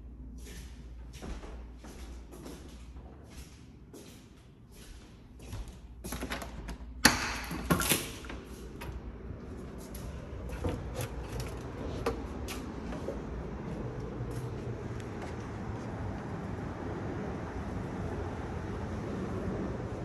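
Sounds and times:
low outdoor rumble: 7.6 - 20.0.

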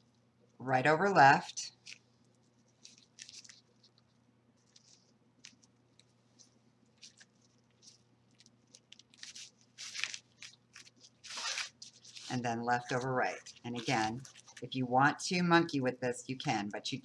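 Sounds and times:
low steady hum: 0.0 - 17.0
rustling and scraping of paper: 1.7 - 14.7.

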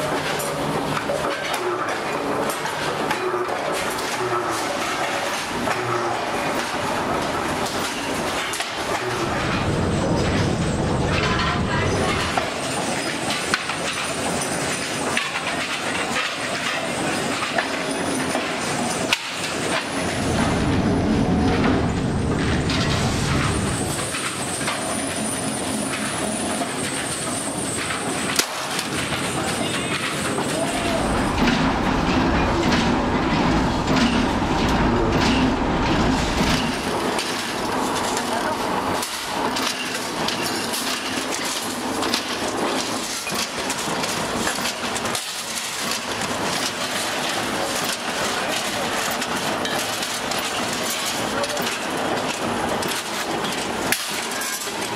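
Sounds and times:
rolling mill rattling: 0.0 - 54.9
sheet metal machinery clattering: 0.0 - 54.9.

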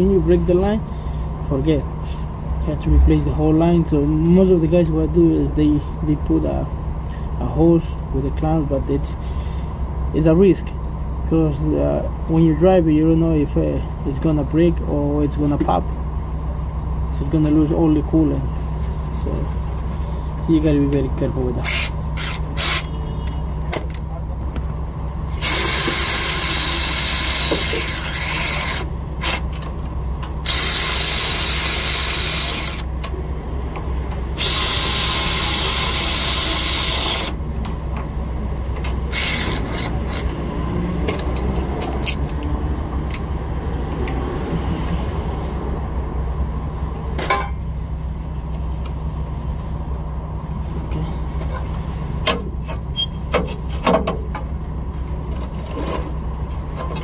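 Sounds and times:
air ratchet running: 21.6 - 23.0, 25.3 - 29.6, 30.4 - 32.9, 34.3 - 37.4, 39.1 - 40.4.

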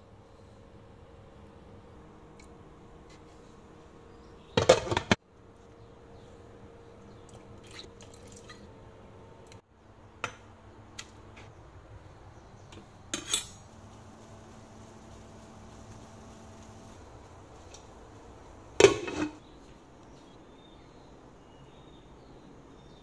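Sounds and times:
faint steady hum: 0.0 - 23.0
pots and utensils clattering: 4.6 - 5.2, 13.1 - 13.7, 18.8 - 19.4.

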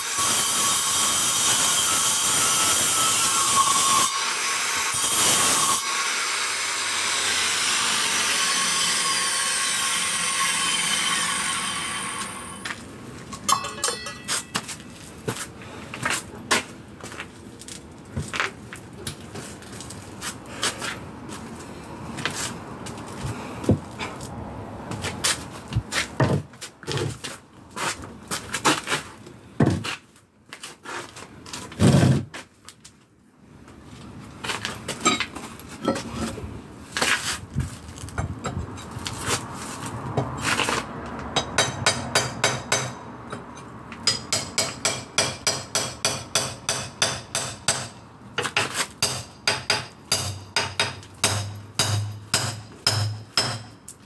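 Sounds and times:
hammer striking with metallic ring: 13.4 - 14.7, 41.4 - 48.0, 49.0 - 53.9.

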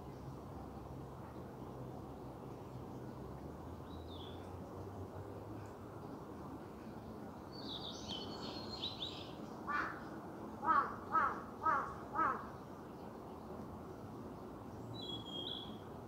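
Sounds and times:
outdoor background hiss: 0.0 - 16.0
crow cawing: 9.7 - 10.0, 10.6 - 12.5
small bird trilling song: 14.9 - 15.8.

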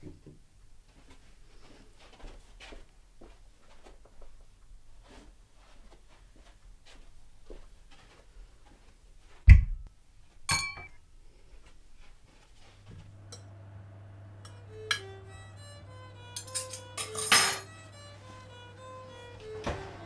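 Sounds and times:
glass clink: 10.5 - 11.0, 16.4 - 17.8
low hum: 13.0 - 20.0
violin music: 13.6 - 20.0
cutlery clatter: 16.4 - 17.8.

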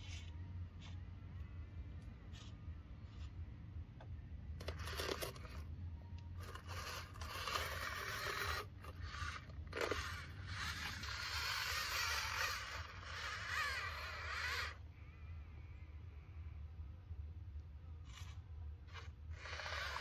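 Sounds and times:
gritty scraping of loose material: 0.0 - 1.1, 2.3 - 3.4, 4.6 - 5.7, 6.4 - 14.8, 18.0 - 20.0
steady low hum: 0.0 - 20.0.

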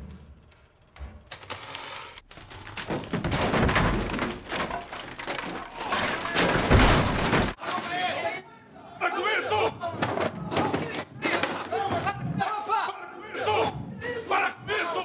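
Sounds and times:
thumps and clattering impacts: 2.3 - 7.6.

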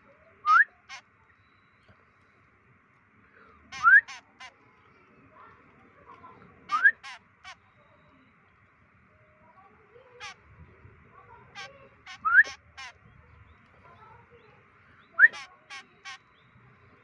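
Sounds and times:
fledgling bird begging calls: 3.7 - 4.6, 6.7 - 7.9, 10.1 - 10.4, 11.4 - 13.1, 15.0 - 16.4.

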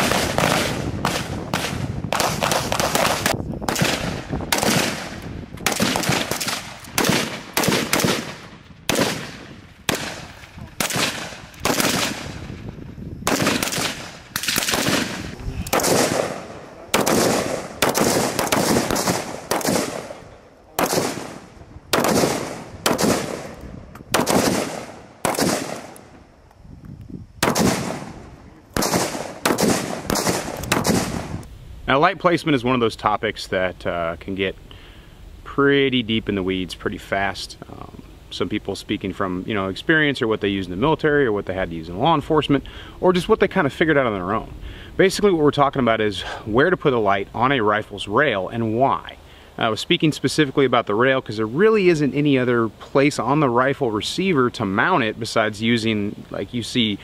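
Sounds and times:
rifle shots echoing: 0.0 - 26.2, 27.4 - 31.4.

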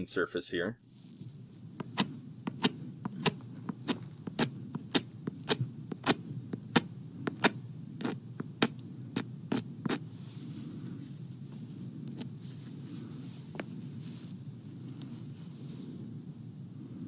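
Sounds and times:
low steady hum: 0.0 - 17.0
stone tapping on flint: 1.8 - 10.0.

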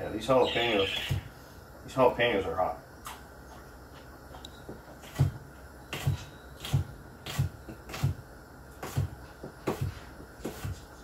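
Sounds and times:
knife chopping on cutting board: 6.0 - 8.2, 8.8 - 10.8.

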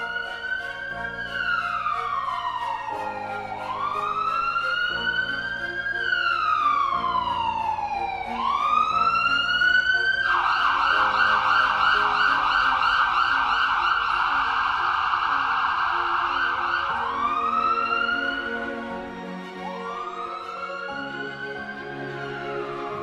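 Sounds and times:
emergency siren wailing: 0.0 - 23.0
siren fast yelp: 10.0 - 18.4.

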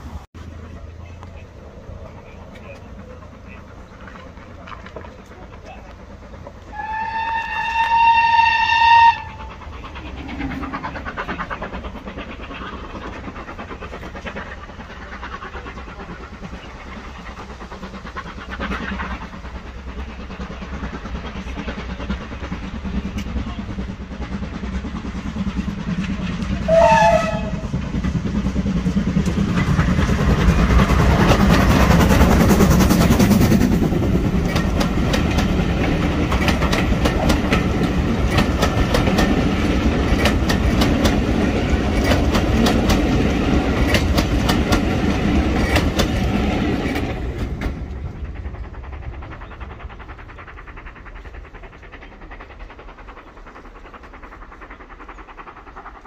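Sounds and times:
steam locomotive exhaust: 0.0 - 56.0
coach wheels clattering: 0.6 - 56.0
steam locomotive whistle: 6.7 - 9.5, 26.6 - 27.7.

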